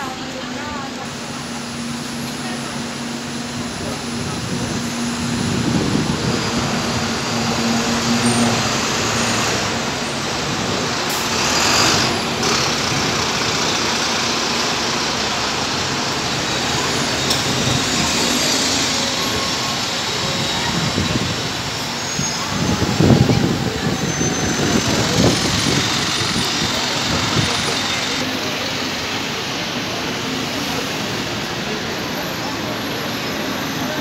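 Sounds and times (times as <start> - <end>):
bus engines passing: 0.0 - 34.0.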